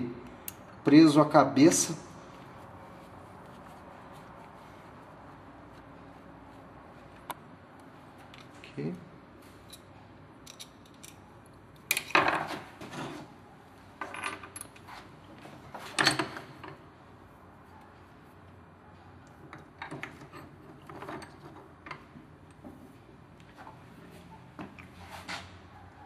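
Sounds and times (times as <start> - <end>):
metal parts clinking and rattling: 9.6 - 12.6, 14.0 - 15.0, 15.8 - 16.8, 19.5 - 22.6.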